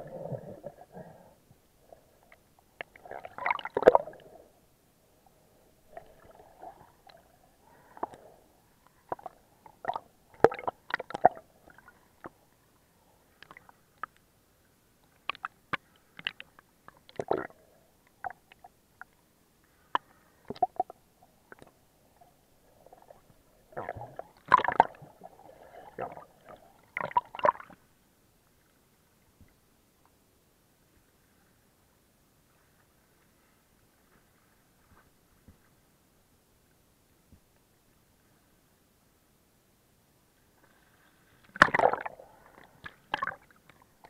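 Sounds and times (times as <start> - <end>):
water swishing and splashing: 0.0 - 4.5, 5.1 - 14.2, 19.7 - 27.9, 40.5 - 44.0.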